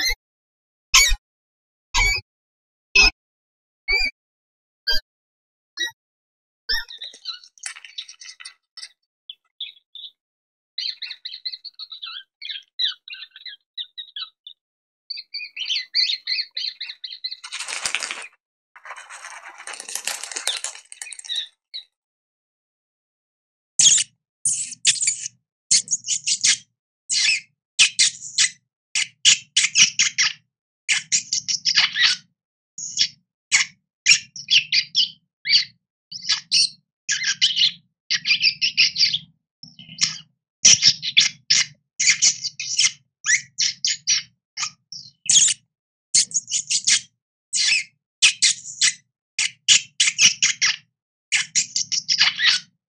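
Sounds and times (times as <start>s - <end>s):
rat squeaking: 6.7s - 8.9s, 15.4s - 21.5s, 23.8s - 28.5s
animal crunching bread: 17.4s - 21.4s.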